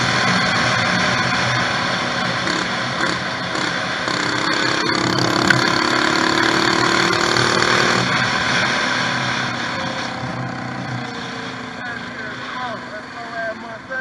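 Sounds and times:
wind and road noise: 0:00.0 - 0:14.0
small engine running: 0:02.2 - 0:08.2.

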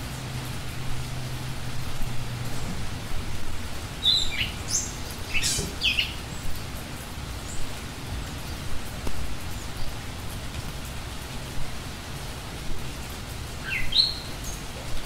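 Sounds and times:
low outdoor rumble: 0:00.0 - 0:13.6
small birds chirping: 0:03.7 - 0:06.7, 0:13.6 - 0:15.0.

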